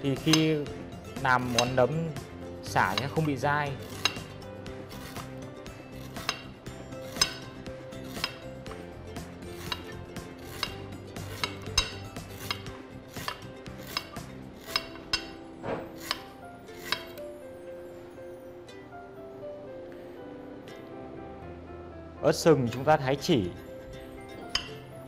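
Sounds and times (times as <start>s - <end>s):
soft background music: 0.0s - 25.0s
knife clicking on glass board: 16.0s - 17.2s.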